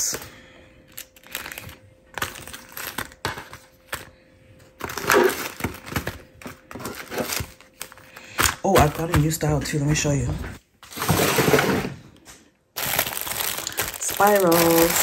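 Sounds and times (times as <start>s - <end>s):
plastic bags crinkling: 0.8s - 9.5s, 12.7s - 15.0s.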